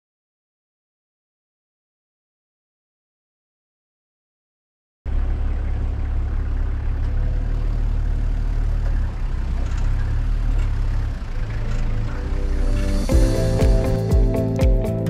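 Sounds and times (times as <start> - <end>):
vehicle engine droning: 5.1 - 15.0.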